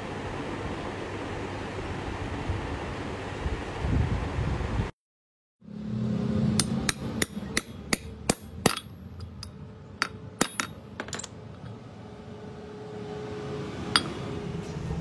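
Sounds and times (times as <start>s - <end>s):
hammer striking metal: 6.5s - 11.3s, 13.9s - 14.3s.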